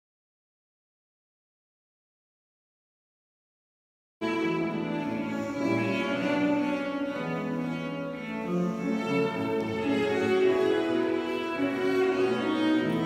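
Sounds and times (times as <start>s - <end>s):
bowed cello playing slow notes: 4.2s - 13.0s.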